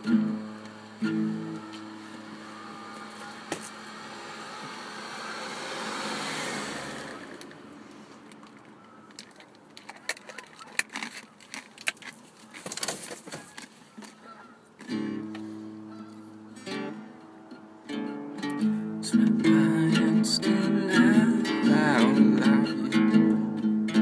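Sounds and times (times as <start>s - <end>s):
vehicle passing by: 0.0s - 9.1s.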